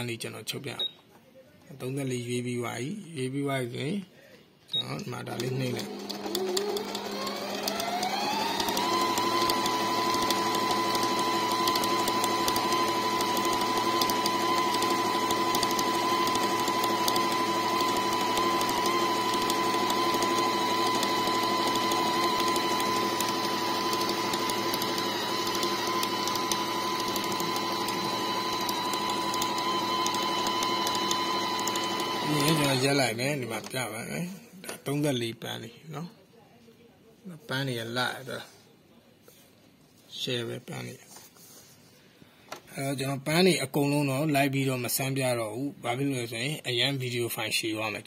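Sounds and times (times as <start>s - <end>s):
sewing machine stitching: 5.2s - 33.8s.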